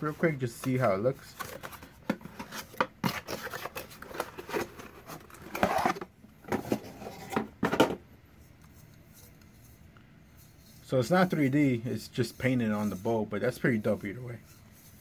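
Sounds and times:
cardboard packaging being opened: 1.3 - 7.4.

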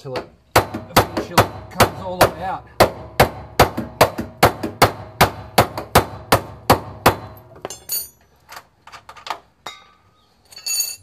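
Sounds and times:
light metal knocks and clinks: 7.4 - 11.0.

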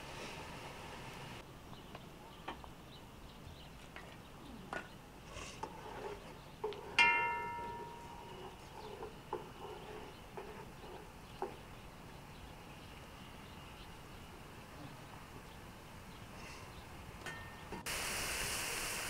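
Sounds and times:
wood fire hissing: 0.0 - 1.4, 17.8 - 19.0
sharp ringing clink: 7.0 - 8.1.

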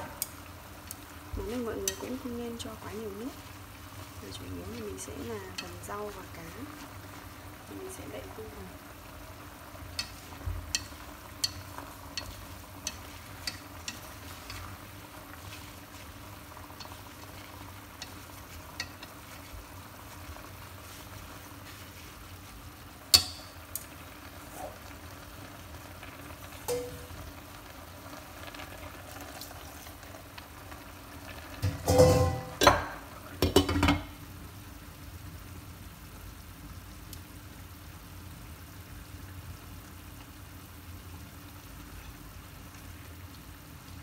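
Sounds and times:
food sizzling in a pot: 0.0 - 44.0
chopsticks clicking against pot: 5.5 - 6.0, 9.9 - 19.5.

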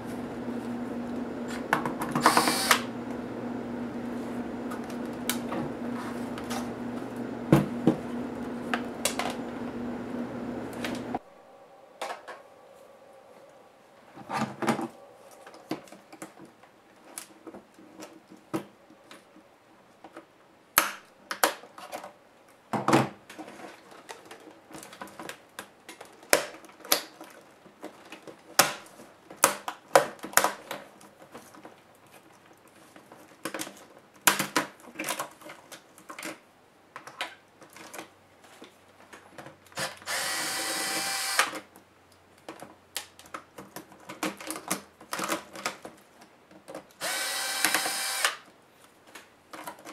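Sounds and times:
low hum: 0.0 - 15.7.

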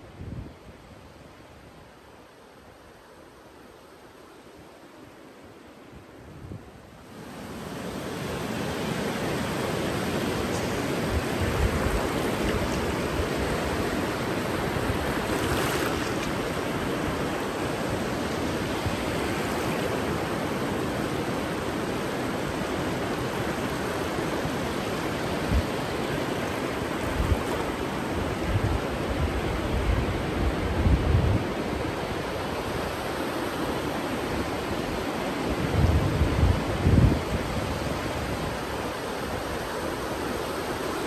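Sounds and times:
ocean waves breaking on beach: 0.0 - 41.0.

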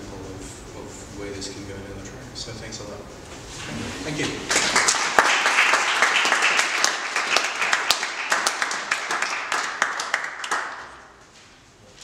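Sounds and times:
audience applauding: 4.4 - 11.1.

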